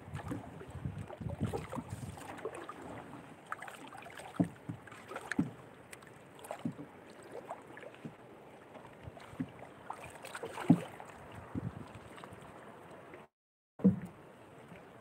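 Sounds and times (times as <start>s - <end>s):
water splashing against a boat: 0.0s - 15.0s
sharp knocks on a boat: 4.2s - 7.0s, 8.0s - 8.2s, 9.0s - 9.6s, 10.3s - 11.9s, 13.8s - 14.2s.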